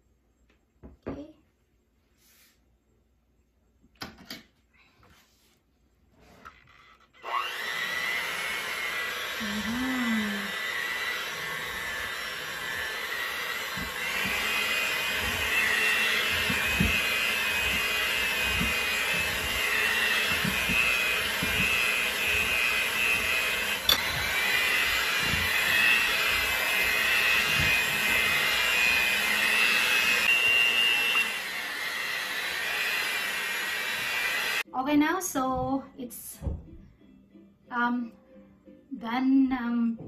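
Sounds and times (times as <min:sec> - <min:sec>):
electric hand mixer whining: 0:06.7 - 0:34.7.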